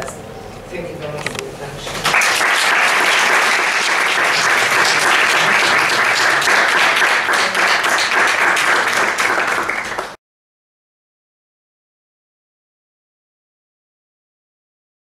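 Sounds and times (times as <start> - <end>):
audience applauding: 2.0 - 10.2.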